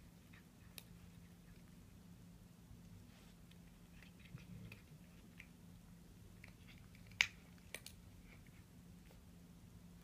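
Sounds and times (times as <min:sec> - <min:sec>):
cat chewing bones: 0:00.1 - 0:02.0, 0:03.4 - 0:08.7.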